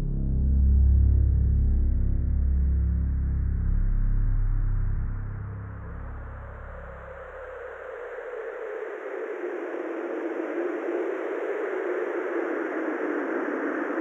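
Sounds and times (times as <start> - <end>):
low drone: 0.0 - 8.8.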